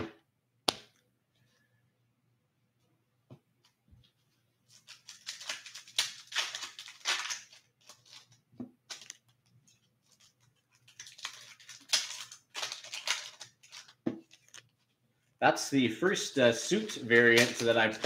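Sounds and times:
cards and plastic holders rustling: 0:03.6 - 0:15.0, 0:16.0 - 0:18.0.

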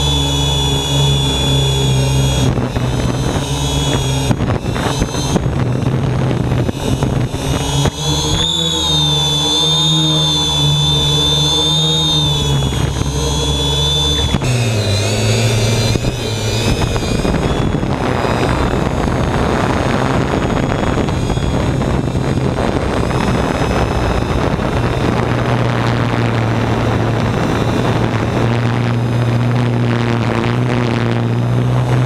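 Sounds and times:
drone propellers humming: 0:00.0 - 0:32.0
rush of air noise: 0:10.6 - 0:32.0.

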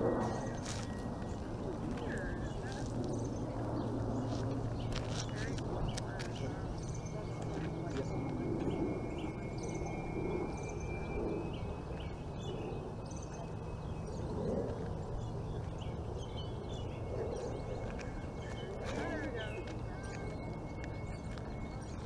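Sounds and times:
steady low rumble: 0:00.0 - 0:22.0
faint bird chirps: 0:00.1 - 0:22.0.

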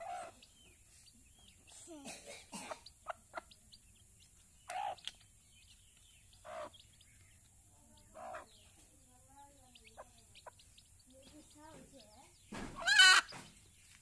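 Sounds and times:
chicks peeping: 0:00.0 - 0:14.0
louder short chick calls: 0:12.8 - 0:13.4.

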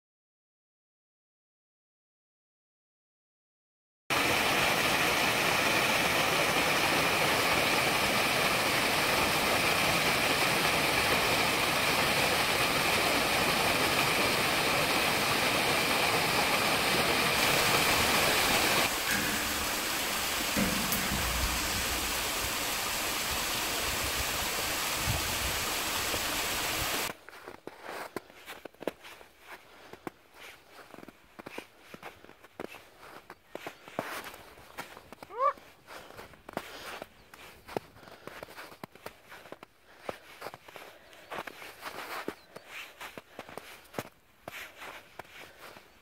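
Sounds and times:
small waterfall splashing over rock: 0:04.1 - 0:27.2.

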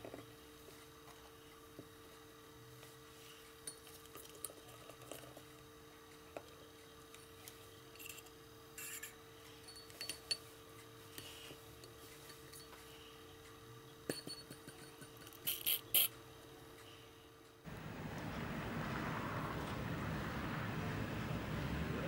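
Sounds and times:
faint steady hum: 0:00.0 - 0:22.0
plastic clinking on glass: 0:14.1 - 0:15.4.

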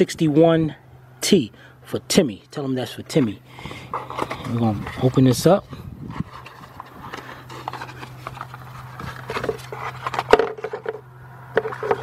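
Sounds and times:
low steady hum: 0:00.0 - 0:12.0
cardboard packaging rustling: 0:03.9 - 0:05.3, 0:06.1 - 0:12.0.

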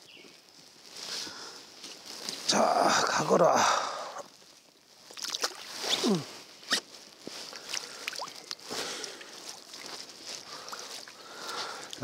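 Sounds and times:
fish splashing: 0:05.1 - 0:05.9, 0:07.5 - 0:09.8.

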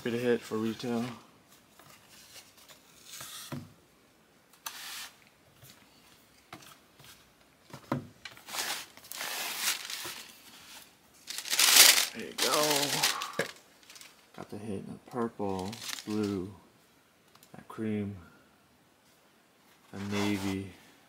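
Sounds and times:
tissue paper rustling: 0:08.4 - 0:14.3, 0:15.6 - 0:16.3.

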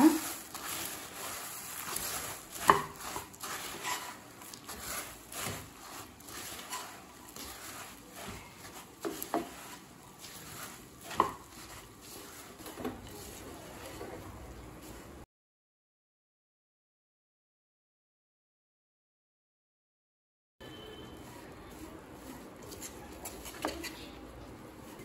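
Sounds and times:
spatula scraping and rustling: 0:00.0 - 0:15.3, 0:20.6 - 0:25.0
spatula knocking on pan: 0:02.5 - 0:04.0, 0:11.0 - 0:11.7.

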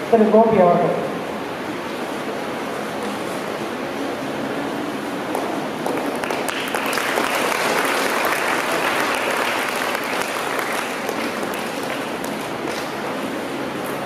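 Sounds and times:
audience applauding: 0:05.3 - 0:13.2.

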